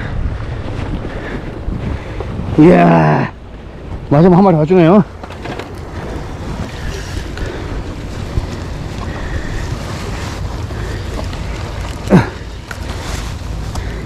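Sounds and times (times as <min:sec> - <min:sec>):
wind rumbling on microphone: 0:00.0 - 0:14.0
sea water washing against rocks: 0:04.8 - 0:14.0.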